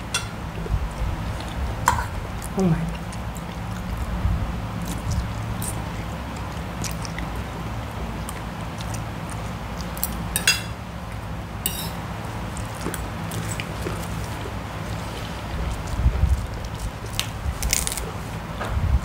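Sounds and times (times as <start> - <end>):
steady low hum: 0.0 - 19.0
noodles slurped and chewed: 0.6 - 10.3, 12.2 - 18.4
cutlery clinking on plates: 10.4 - 10.8, 11.7 - 12.0.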